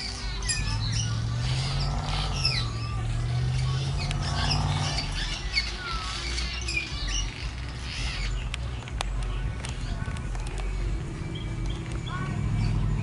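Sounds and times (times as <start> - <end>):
swallows twittering: 0.0 - 8.8.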